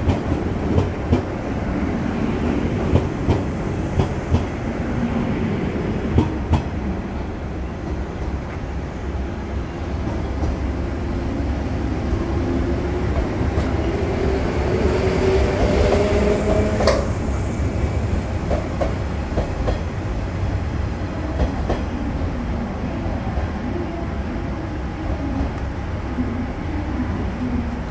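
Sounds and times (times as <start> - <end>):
train low rumble: 0.0 - 27.9
train wheels clicking over rail joints: 15.6 - 17.2.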